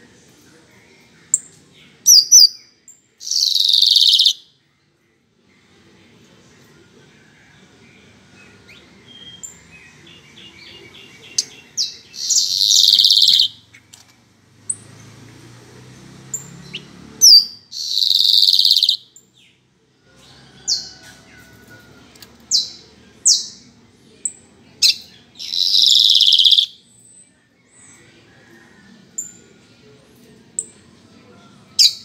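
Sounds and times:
blackbird buzzy song phrases: 1.0 - 5.9, 7.8 - 14.0, 16.3 - 19.7, 22.5 - 29.5.

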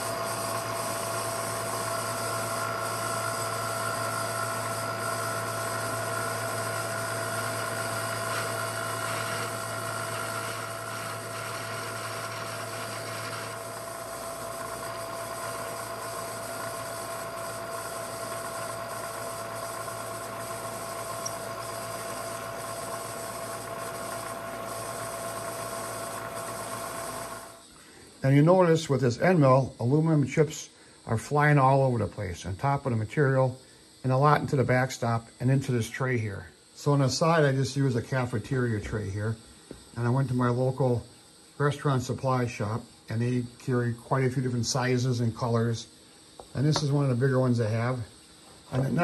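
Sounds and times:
milling spindle whine: 0.0 - 49.0
hiss of metal cutting: 8.2 - 13.6.

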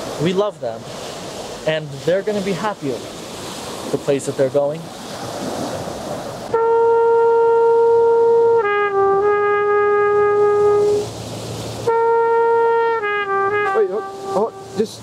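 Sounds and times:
trumpet playing long notes: 6.5 - 11.2, 11.8 - 15.0.

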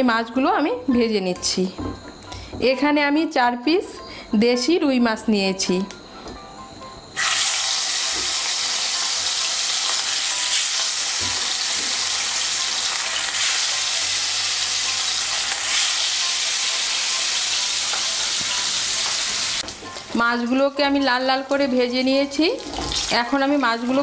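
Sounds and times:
fish frying in hot oil: 7.2 - 19.7.

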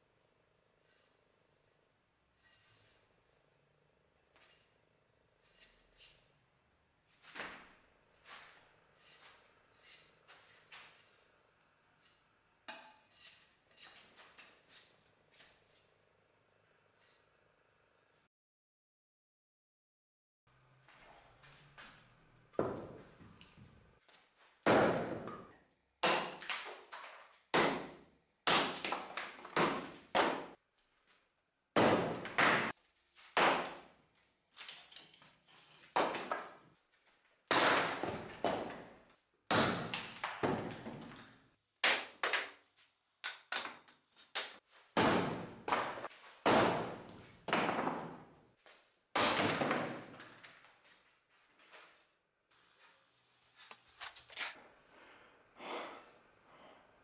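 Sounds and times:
axe thudding into log: 33.3 - 33.8.

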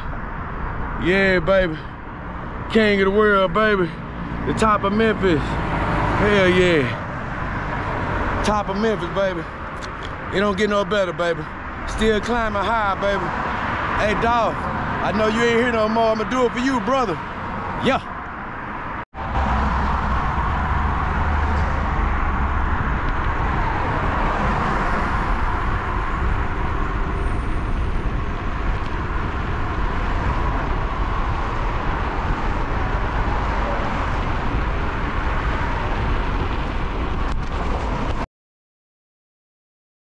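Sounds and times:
bicycle road noise: 0.0 - 38.2
wind on microphone: 19.3 - 38.2.

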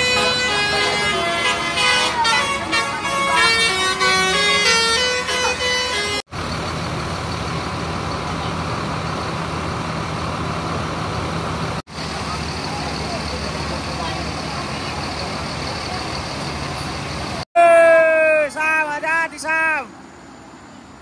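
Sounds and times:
musical bus horn tune: 0.0 - 6.3
bus engine humming: 0.0 - 17.4.

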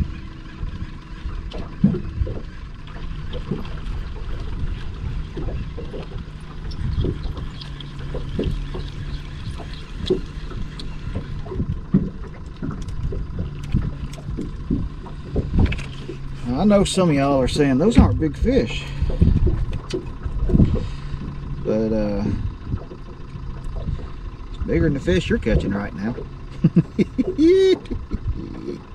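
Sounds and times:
wind rumbling on microphone: 0.0 - 26.1, 27.4 - 28.9
small waves knocking on boat hull: 1.5 - 16.3.

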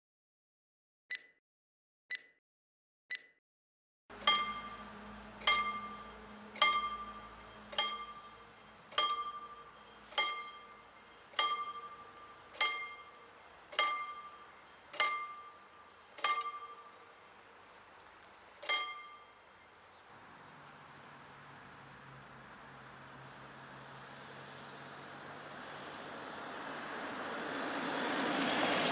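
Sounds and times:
level crossing warning bell: 4.1 - 17.6, 18.6 - 19.8.

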